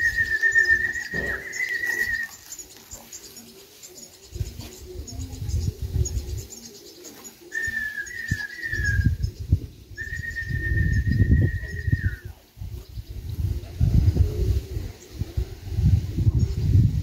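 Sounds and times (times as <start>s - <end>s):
high whistled notes: 0.0s - 2.6s, 7.6s - 9.3s, 10.0s - 12.3s
wind gusts on microphone: 4.2s - 6.8s, 7.6s - 17.0s.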